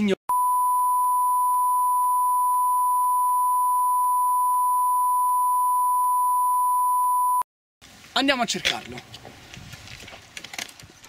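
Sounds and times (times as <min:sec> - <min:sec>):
high pure beep tone: 0:00.3 - 0:07.5.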